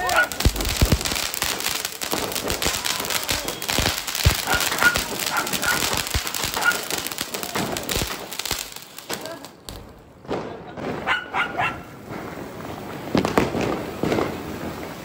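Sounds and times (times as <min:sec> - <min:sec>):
firework hissing and crackling: 0:00.0 - 0:11.1, 0:11.8 - 0:15.0.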